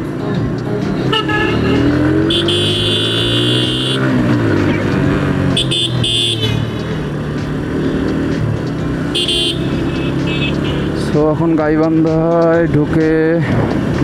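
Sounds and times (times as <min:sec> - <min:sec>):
motorcycle engine running: 0:00.9 - 0:14.0
high horn blasts: 0:01.1 - 0:04.2, 0:05.5 - 0:06.7, 0:09.1 - 0:10.9.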